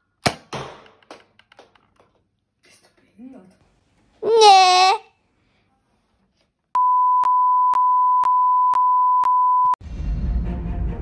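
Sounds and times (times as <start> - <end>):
high electronic beep tone: 6.8 - 9.8.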